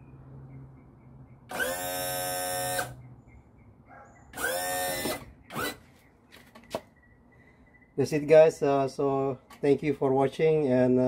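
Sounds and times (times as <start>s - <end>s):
trim motor and pump whining: 1.5s - 3.0s, 4.4s - 5.8s.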